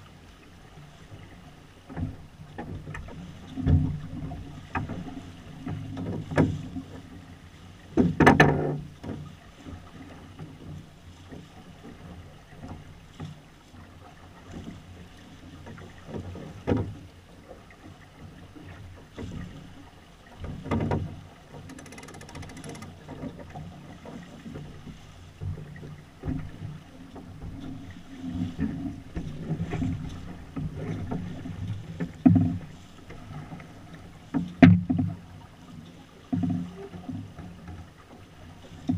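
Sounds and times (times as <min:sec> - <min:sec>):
water rushing along hull: 0:00.0 - 0:38.9.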